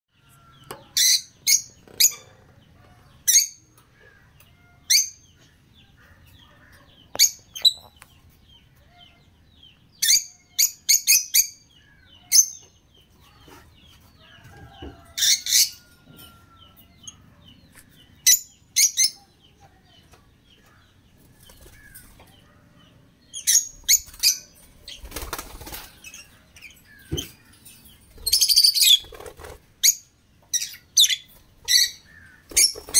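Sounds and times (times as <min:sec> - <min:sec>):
birds chirping high-pitched: 0:00.1 - 0:32.9
wings flapping: 0:24.8 - 0:26.0, 0:28.3 - 0:29.7.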